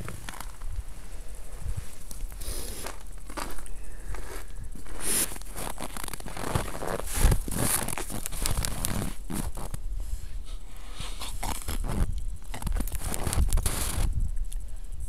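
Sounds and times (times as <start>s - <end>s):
microphone handling scrapes: 4.2s - 14.1s.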